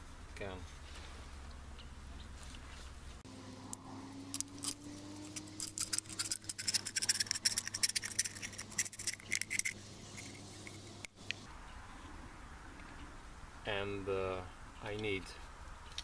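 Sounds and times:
knife scraping metal can: 4.4 - 10.8.

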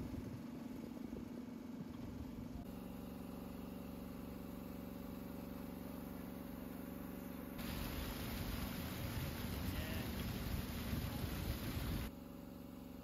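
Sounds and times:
water splashing against a hull: 7.6 - 12.1.

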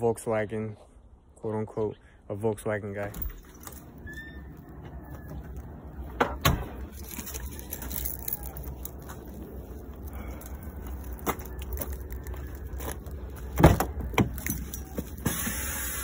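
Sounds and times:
steady low rumble: 3.6 - 15.2
keys jangling: 6.9 - 9.3, 14.3 - 15.0.

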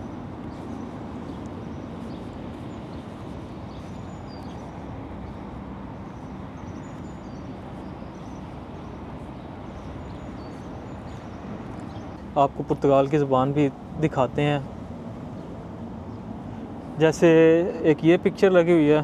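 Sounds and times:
bird chirps: 0.0 - 12.3
low background rumble: 0.0 - 18.6.

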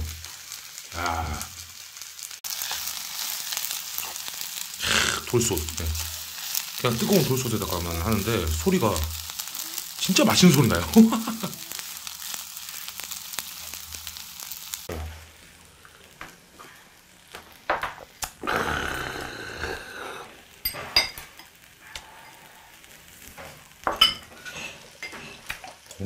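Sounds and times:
rice sizzling in a stone bowl: 0.0 - 26.0
tableware clinking: 20.6 - 21.5, 23.9 - 25.4.

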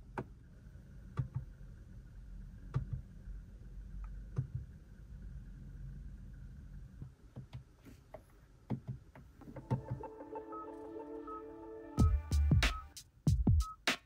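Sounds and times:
low steady hum: 0.0 - 7.3, 9.3 - 13.0.

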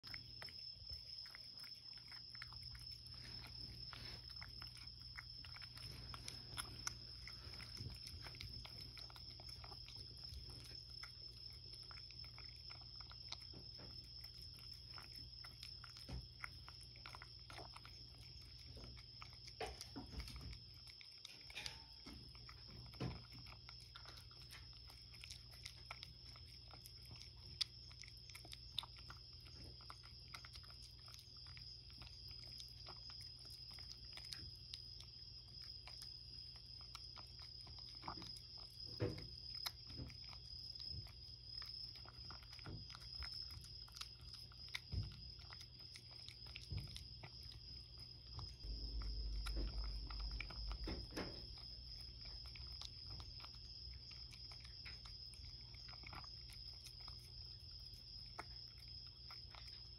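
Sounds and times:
cat chewing wet food: 0.0 - 59.9
low hum: 48.4 - 53.5
low rumble: 48.6 - 51.6.

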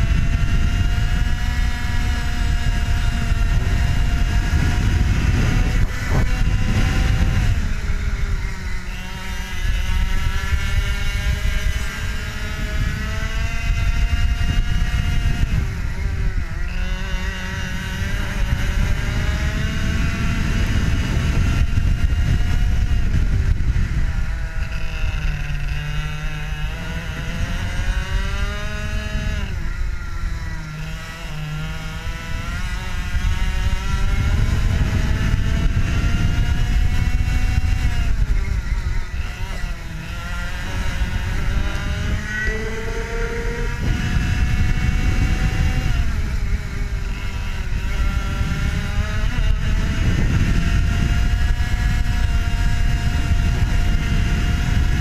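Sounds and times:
kart engine revving: 0.0 - 55.0
wind rushing on microphone: 0.0 - 55.0.

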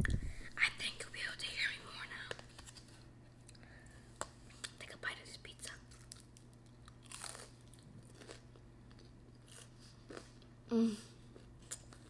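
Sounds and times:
biting and chewing pizza: 5.9 - 10.5
person humming: 10.7 - 11.2.

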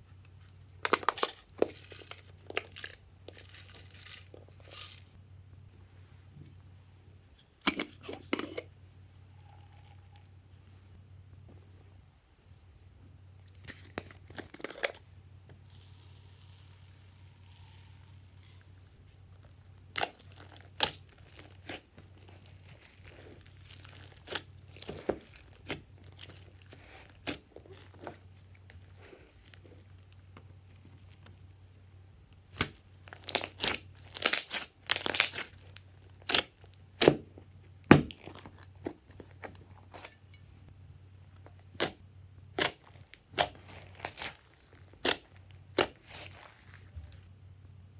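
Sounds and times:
slime popping and crackling: 15.7 - 28.2, 32.5 - 38.9, 41.8 - 47.2.

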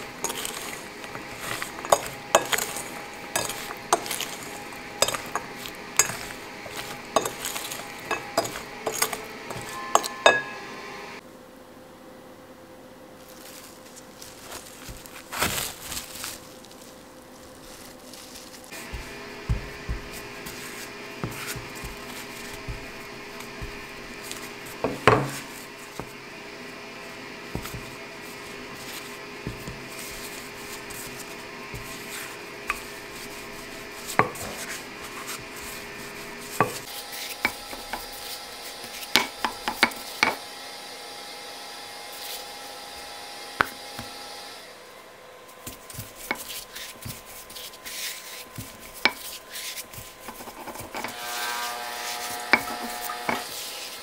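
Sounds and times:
dough rubbing: 0.0 - 10.6, 13.2 - 40.4, 45.5 - 54.0
rolling pin knocking on stone: 18.8 - 20.6, 21.2 - 26.1.

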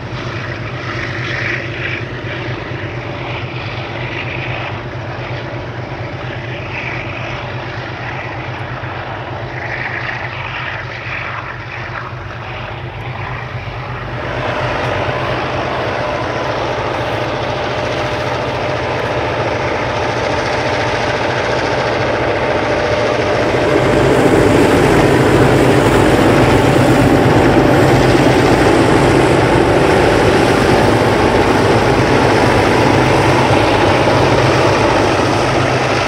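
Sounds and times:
locomotive engine drone: 0.0 - 36.0
steady whine: 0.0 - 36.0.

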